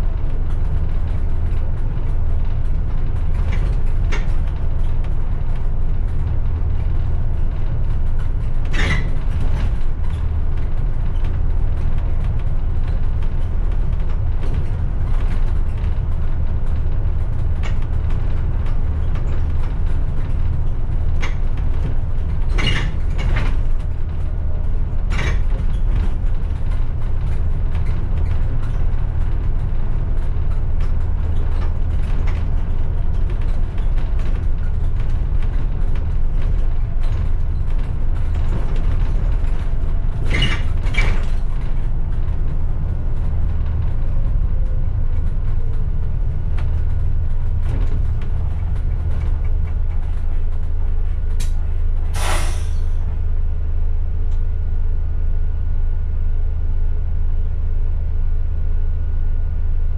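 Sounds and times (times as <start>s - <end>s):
bus engine droning: 0.0s - 59.9s
air brake hiss: 52.1s - 53.0s
air hiss bursts: 52.2s - 52.8s.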